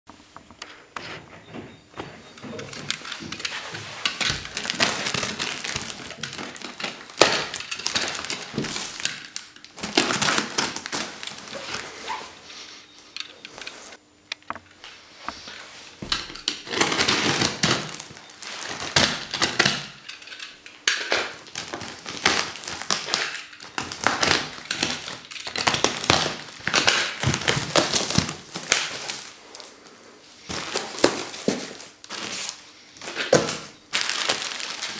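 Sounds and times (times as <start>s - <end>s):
plastic wrap crinkling: 2.2s - 14.0s, 15.3s - 34.9s
packing tape ripping: 3.0s - 12.3s, 16.2s - 29.7s, 30.4s - 34.9s.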